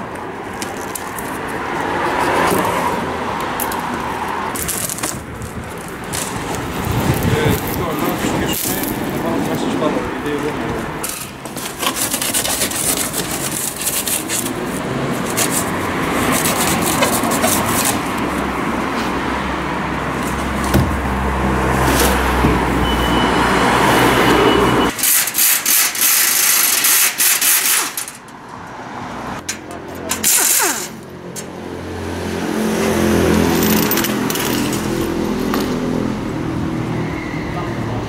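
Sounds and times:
cardboard tearing and scraping: 0:04.5 - 0:09.2, 0:11.0 - 0:18.4
pneumatic tool bursts: 0:24.9 - 0:28.2, 0:30.1 - 0:31.0.

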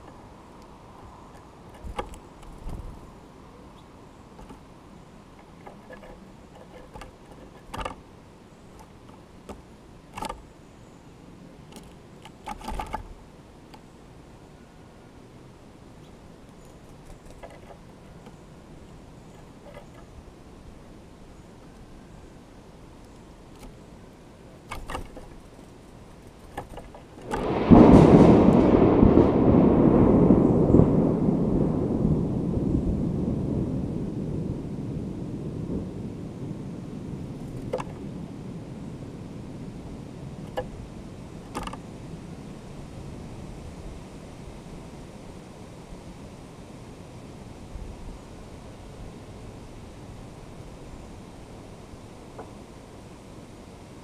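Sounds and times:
woodpecker pecking on log: 0:01.3 - 0:03.0, 0:04.3 - 0:04.6, 0:05.4 - 0:08.0, 0:16.5 - 0:18.4, 0:24.5 - 0:27.5
thunder rolling rumble: 0:27.2 - 0:44.8.

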